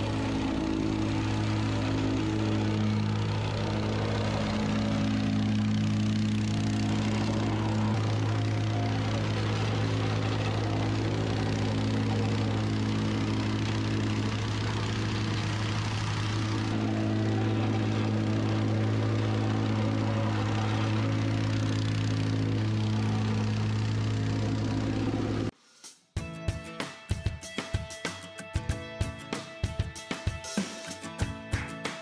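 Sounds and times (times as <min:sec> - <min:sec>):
plate compactor engine hum: 0:00.0 - 0:25.5.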